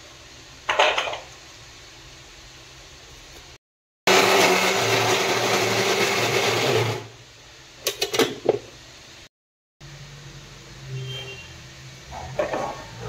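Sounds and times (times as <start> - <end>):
mixer grinder running: 4.1 - 7.2.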